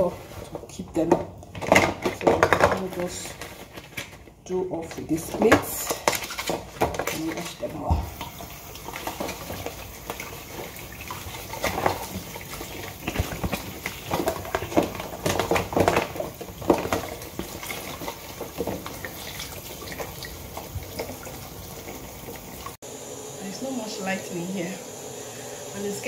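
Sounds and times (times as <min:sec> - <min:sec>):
plastic containers clattering: 0:00.0 - 0:22.3
sponge scrubbing containers: 0:00.0 - 0:22.8
tap water running into a sink: 0:07.8 - 0:22.8.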